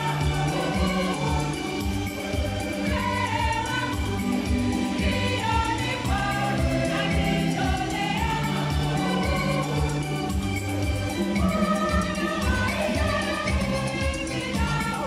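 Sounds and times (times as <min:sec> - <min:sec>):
choir singing gospel: 0:00.0 - 0:15.0.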